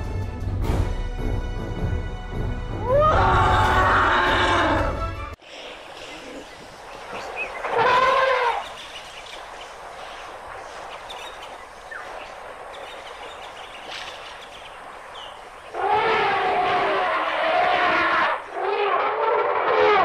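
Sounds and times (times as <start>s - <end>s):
elephant trumpeting: 2.8s - 5.0s, 7.6s - 8.8s, 15.7s - 20.0s
faint bird calls: 5.5s - 19.0s.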